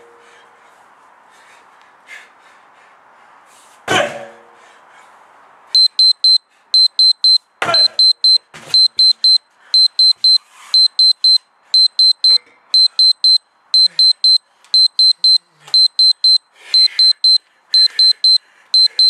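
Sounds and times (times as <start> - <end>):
sledgehammer thudding on tyre: 3.9 - 4.4
electronic timer beeping: 5.8 - 19.0.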